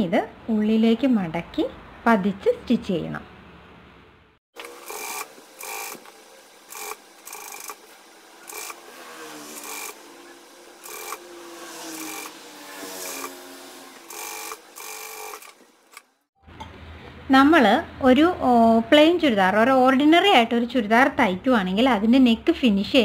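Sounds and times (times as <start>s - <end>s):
sewing machine stitching: 4.6s - 16.1s.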